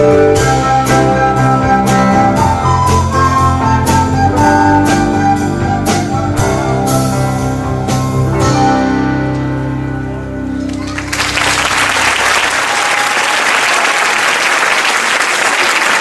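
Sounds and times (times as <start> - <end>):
drum kit: 0.0 - 9.4
guitar: 0.0 - 11.5
keyboard: 0.0 - 12.3
recorder ensemble melody: 0.0 - 12.3.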